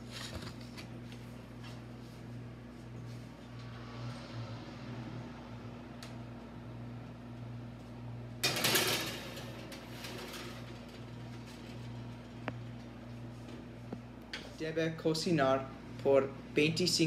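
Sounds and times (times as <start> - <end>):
steady hum: 0.0 - 17.0
oven rack rattling out: 8.4 - 12.3.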